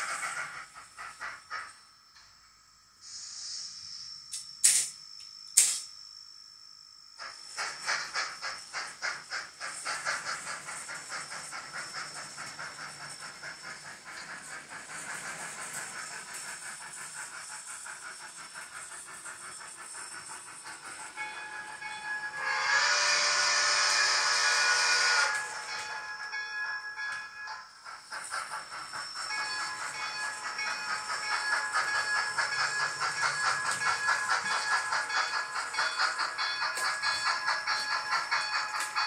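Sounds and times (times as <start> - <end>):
steam locomotive exhaust chuffs: 0.0 - 6.0, 7.1 - 39.0
steam hiss: 0.0 - 6.2, 7.1 - 39.0.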